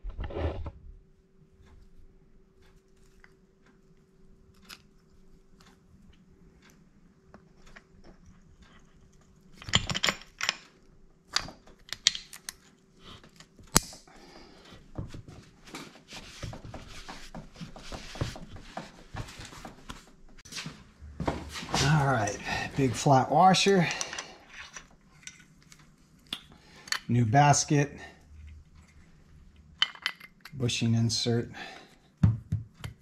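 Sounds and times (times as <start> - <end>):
small metal parts clicking: 8.6 - 12.8, 23.6 - 27.1.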